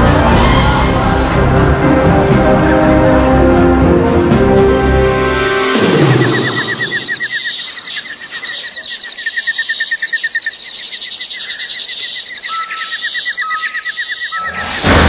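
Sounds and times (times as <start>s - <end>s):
higher insect trill: 5.7s - 14.9s
insects trilling: 5.9s - 14.9s.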